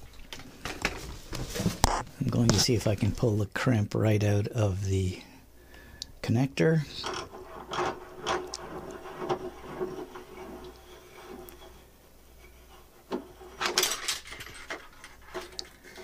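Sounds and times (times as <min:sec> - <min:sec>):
wire clicks and creaks: 0:06.8 - 0:11.8, 0:13.1 - 0:16.0.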